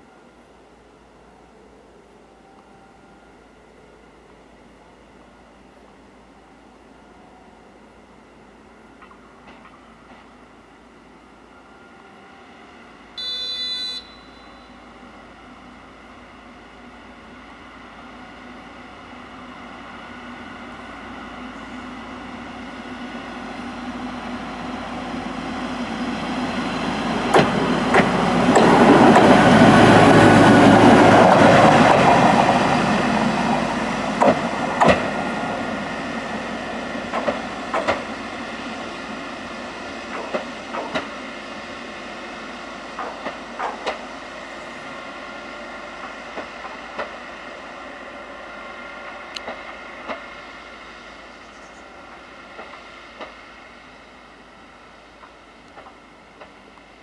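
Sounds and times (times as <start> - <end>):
wheels clanking on rails: 27.0 - 35.7, 37.0 - 38.2, 40.0 - 41.2, 42.9 - 44.2.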